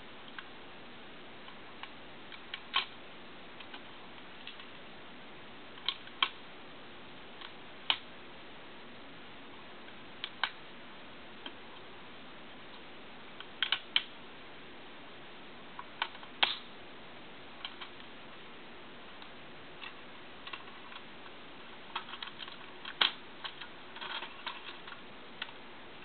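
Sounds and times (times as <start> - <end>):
plastic parts clicking and rattling: 19.8 - 21.1, 21.9 - 25.6.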